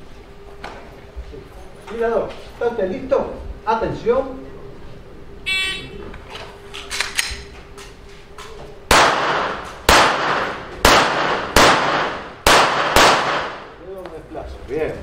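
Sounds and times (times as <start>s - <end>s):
gunshots with echo: 8.9s - 13.8s.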